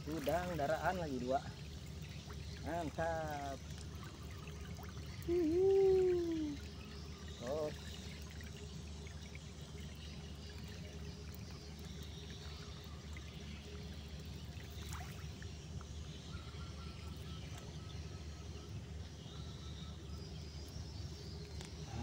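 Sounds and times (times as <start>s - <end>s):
water trickling off a net: 0.0s - 15.8s.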